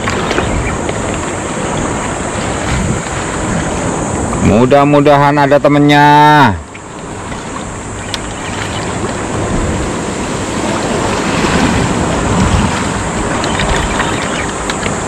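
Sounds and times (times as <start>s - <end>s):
wind rushing over microphone: 0.0s - 15.0s
water washing: 6.5s - 15.0s
faint clicks: 6.7s - 8.7s, 13.3s - 15.0s.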